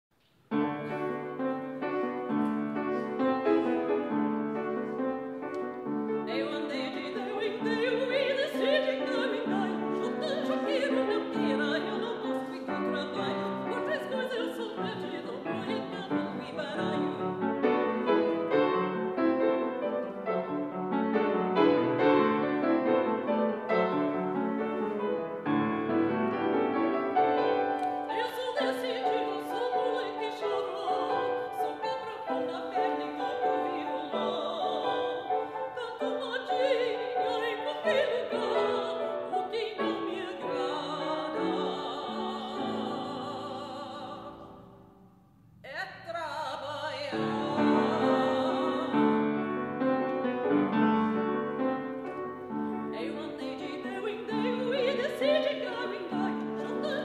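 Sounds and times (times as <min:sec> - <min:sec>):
piano: 0:00.1 - 0:57.0
woman singing art song: 0:06.2 - 0:18.6, 0:27.3 - 0:44.8, 0:45.6 - 0:49.8, 0:52.0 - 0:57.0.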